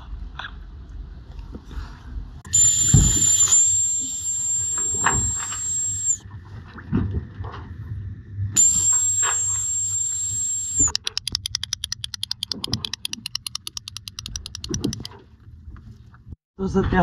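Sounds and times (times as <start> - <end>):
high-pitched whistle: 2.5 - 6.2, 8.6 - 11.0
rapid sharp clicks: 10.7 - 15.1.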